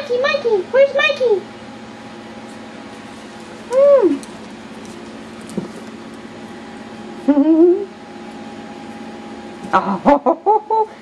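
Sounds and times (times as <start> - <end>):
low room hum: 0.0 - 11.0
woman cooing: 3.7 - 4.2, 7.3 - 7.9, 9.8 - 11.0.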